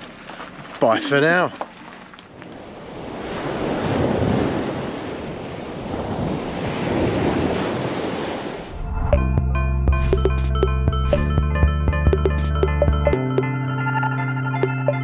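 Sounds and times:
surf washing on beach: 2.4s - 8.8s.

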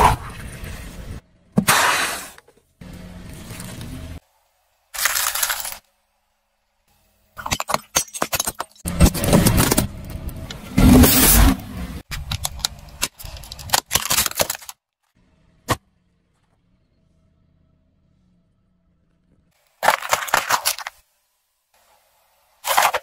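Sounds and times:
tyre crunching candy: 5.0s - 5.9s, 19.7s - 21.0s.

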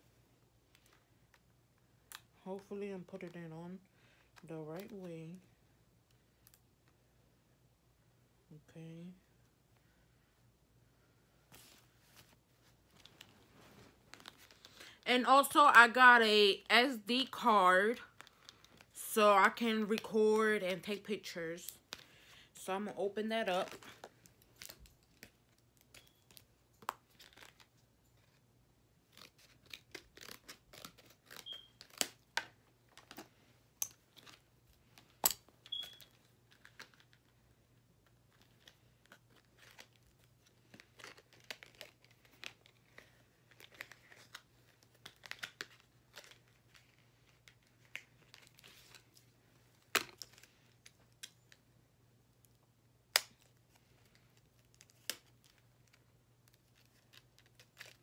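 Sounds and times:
plastic and card crinkles and clicks: 0.6s - 2.4s, 4.2s - 5.2s, 6.0s - 7.0s, 11.5s - 15.0s, 17.9s - 19.0s, 23.6s - 58.0s
package being torn open: 23.9s - 28.4s, 29.0s - 33.3s, 38.1s - 49.2s, 53.2s - 58.0s.

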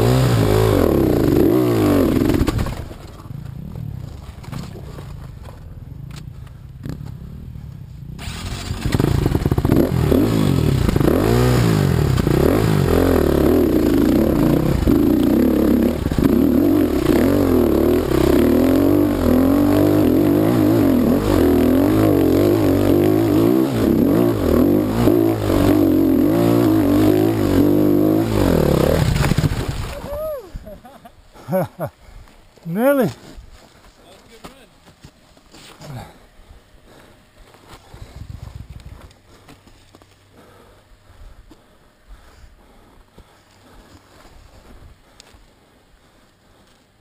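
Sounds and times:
dirt bike engine revving: 0.0s - 2.9s, 8.2s - 29.6s.

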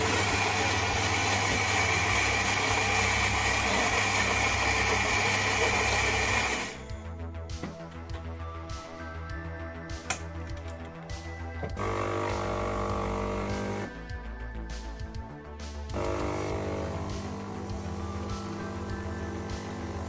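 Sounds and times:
coffee grinder whirring: 0.0s - 6.8s, 11.8s - 13.9s, 15.9s - 20.0s.

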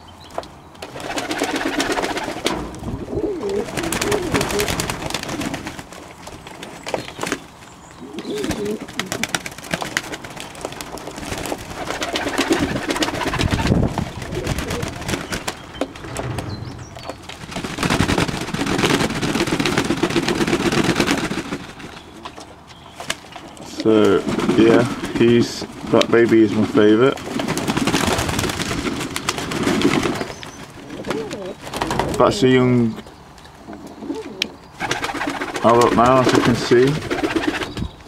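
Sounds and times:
birds scuffling: 0.2s - 38.0s
wing flaps: 0.8s - 5.9s, 8.3s - 22.4s, 34.8s - 37.9s
pigeons cooing: 0.9s - 5.9s, 6.9s - 10.1s, 11.2s - 18.9s, 23.7s - 38.0s.

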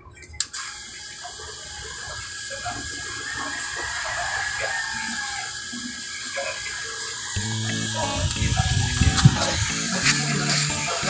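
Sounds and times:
water pump running: 7.4s - 11.0s.

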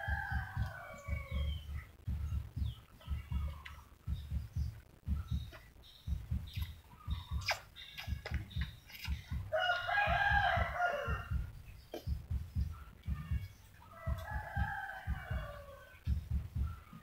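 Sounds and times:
rooster crowing: 0.0s - 1.8s, 9.5s - 11.5s, 13.1s - 16.0s
soft low thumps: 0.0s - 17.0s.

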